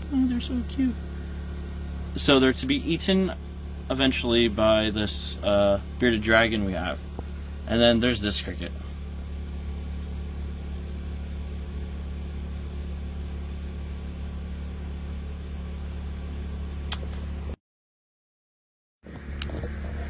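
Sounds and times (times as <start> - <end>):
short click: 16.9 - 17.3
low hum: 19.0 - 20.0.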